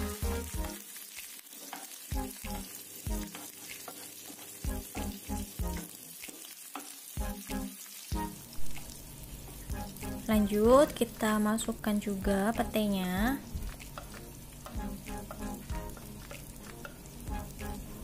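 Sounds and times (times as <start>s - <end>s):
oil sizzling in a frying pan: 0.0s - 18.0s
wooden spatula scraping a pan: 1.5s - 2.1s, 3.2s - 4.6s.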